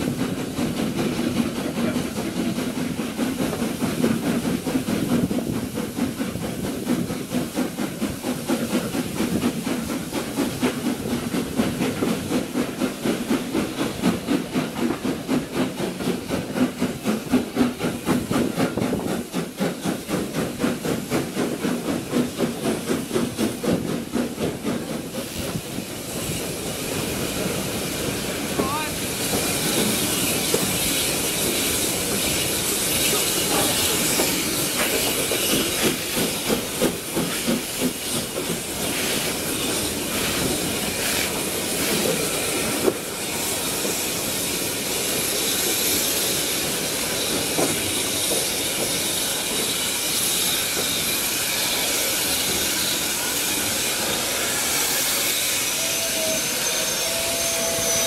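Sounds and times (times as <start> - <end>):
rhythmic steam pulses: 0.0 - 58.0
steam hissing: 0.0 - 58.0
train wheels on rails: 0.0 - 58.0.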